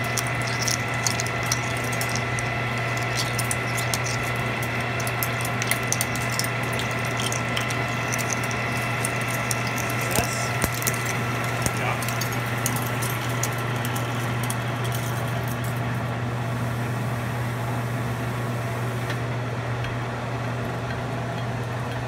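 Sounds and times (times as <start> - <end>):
metal chips ticking: 0.0 - 15.8
lathe humming: 0.0 - 19.3.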